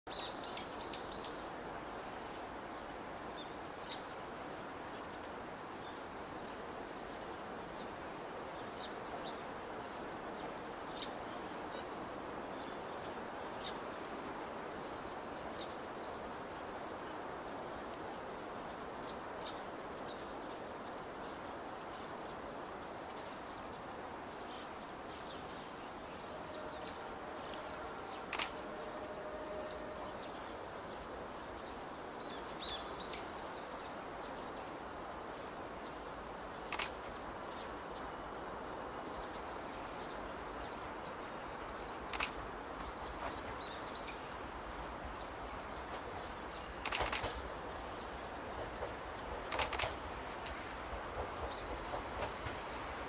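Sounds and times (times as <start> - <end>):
outdoor background hiss: 0.0 - 53.0
faint steady tone: 0.1 - 48.6
sharp click: 28.3 - 28.6, 36.7 - 37.0, 42.1 - 42.4, 46.8 - 47.4, 49.5 - 50.0
small birds chirping: 45.1 - 52.8.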